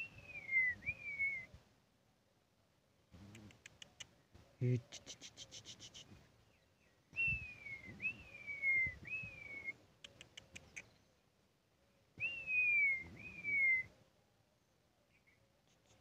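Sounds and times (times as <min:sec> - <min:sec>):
tongue clicks: 0:03.2 - 0:04.2, 0:04.8 - 0:06.2, 0:10.0 - 0:11.0
person whistling: 0:07.2 - 0:09.7.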